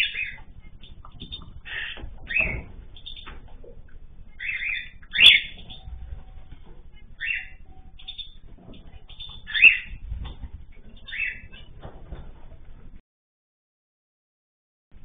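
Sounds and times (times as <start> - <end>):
cockatiels chirping: 0.0 - 3.5, 4.4 - 6.2, 7.1 - 11.9.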